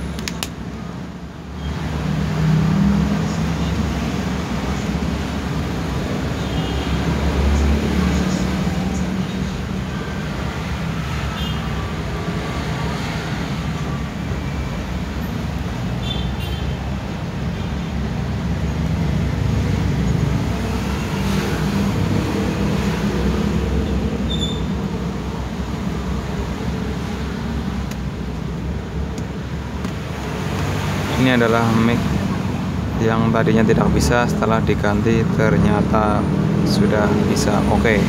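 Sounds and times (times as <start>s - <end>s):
road traffic rumble: 0.0s - 38.0s.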